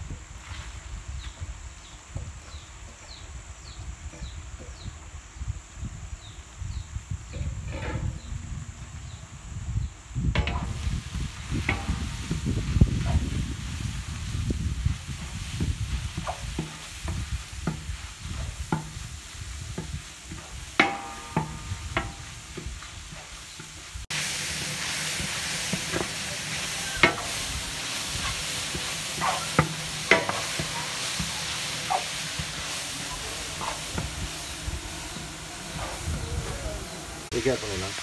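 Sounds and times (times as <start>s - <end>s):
vegetables sizzling in oil: 0.0s - 38.0s
spatula scraping metal wok: 14.9s - 36.2s.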